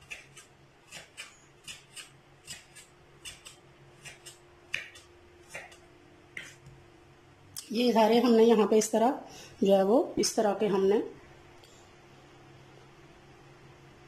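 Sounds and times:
knife chopping on wooden board: 0.0s - 5.8s, 6.4s - 6.8s.

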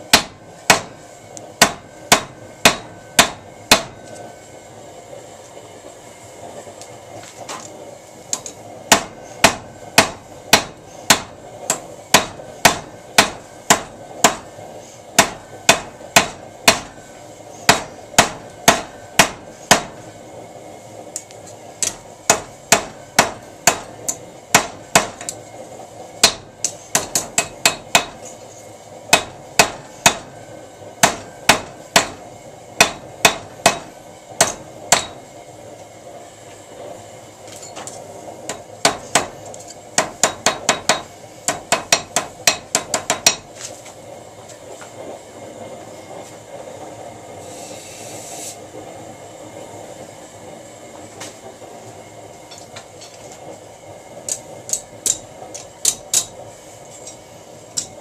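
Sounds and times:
hammer striking steel on anvil: 0.1s - 1.0s, 1.6s - 4.2s, 8.4s - 14.5s, 15.2s - 17.0s, 17.7s - 20.0s, 21.8s - 25.4s, 26.2s - 28.4s, 29.1s - 30.4s, 31.0s - 32.2s, 32.8s - 35.3s, 37.6s - 43.5s, 54.3s - 56.4s, 57.8s - 58.0s.

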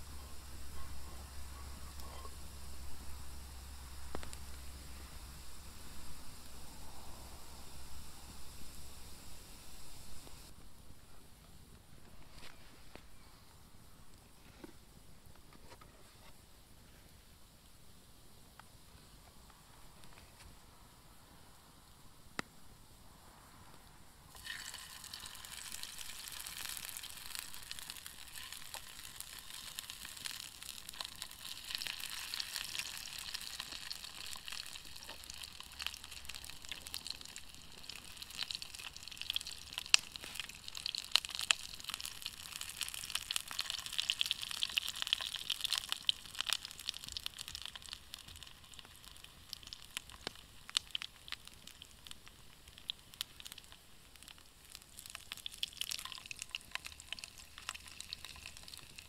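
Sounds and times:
food sizzling over a fire: 0.0s - 10.5s, 24.3s - 59.0s
pops and crackles: 4.1s - 4.6s, 24.3s - 59.0s.

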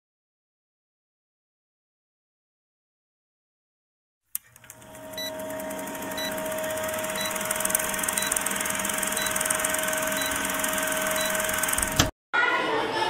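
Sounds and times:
film projector clatter and hum: 4.4s - 12.1s.

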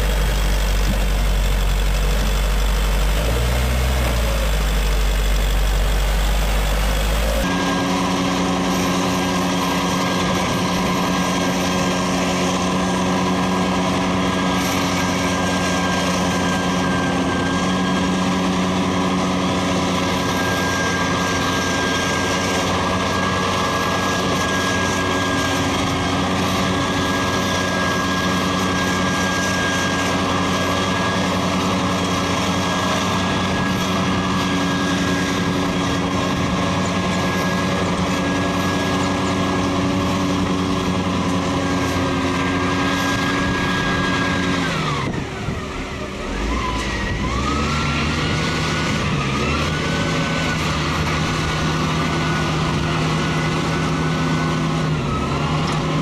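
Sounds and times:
high whine: 0.0s - 18.4s
diesel engine running under load: 0.0s - 56.0s.

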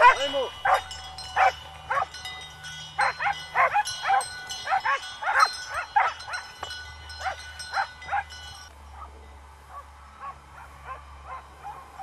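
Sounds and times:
animal barking calls: 0.0s - 2.2s, 3.0s - 6.5s.

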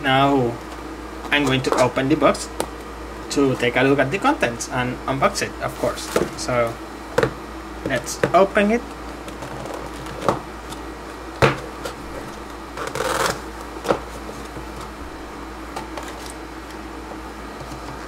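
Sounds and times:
papery sliding rustle: 5.7s - 6.3s.

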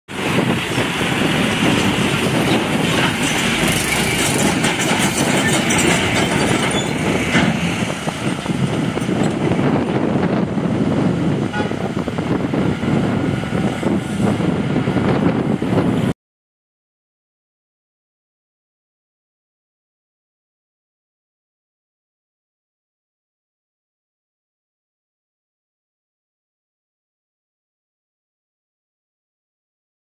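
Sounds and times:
heavy diesel machinery rumbling: 0.1s - 16.1s.

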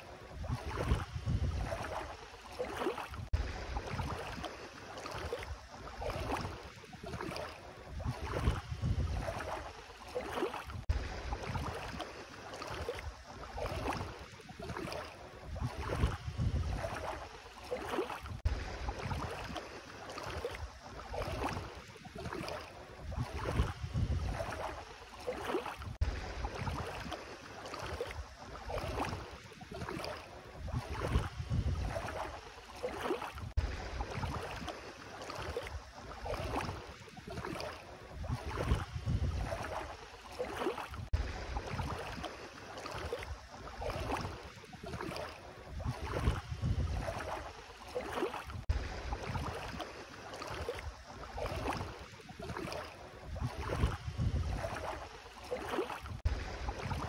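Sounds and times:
feet wading through water: 0.0s - 57.0s
wind rumble on microphone: 0.1s - 2.1s, 3.1s - 4.4s, 5.3s - 9.7s, 10.7s - 12.0s, 14.8s - 17.3s, 18.2s - 19.6s, 22.3s - 24.8s, 25.8s - 27.1s, 29.9s - 32.4s, 33.4s - 34.7s, 35.7s - 40.0s, 40.9s - 42.2s, 43.3s - 47.5s, 48.5s - 49.8s, 50.8s - 55.1s, 56.0s - 57.0s.

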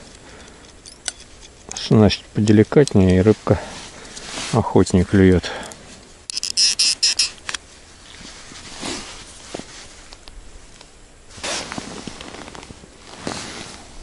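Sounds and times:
gloved hands rustling: 5.8s - 14.0s
fishing reel clicking: 6.3s - 7.4s.

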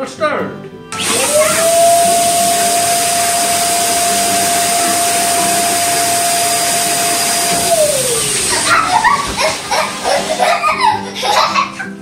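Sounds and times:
electric balloon pump whining: 0.9s - 11.1s.

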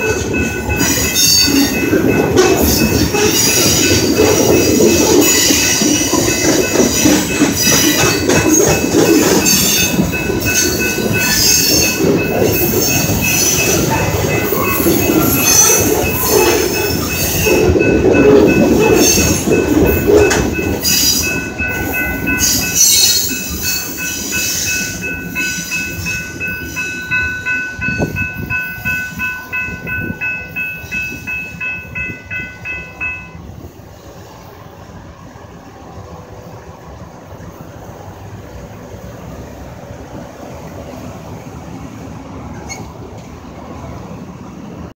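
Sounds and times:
crossing bell dinging: 0.0s - 33.7s
freight train rolling over rails: 0.0s - 45.0s
low road noise: 0.0s - 45.0s.

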